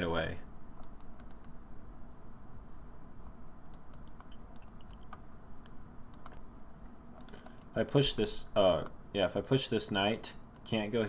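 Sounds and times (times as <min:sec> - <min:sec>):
low steady hum: 0:00.0 - 0:11.0
computer mouse clicks: 0:00.8 - 0:01.6, 0:03.7 - 0:06.4, 0:07.2 - 0:07.8.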